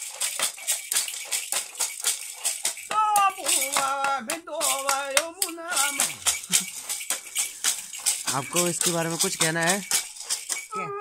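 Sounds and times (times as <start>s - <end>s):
hand rattle shaken: 0.0s - 10.9s
man chanting: 2.9s - 6.2s.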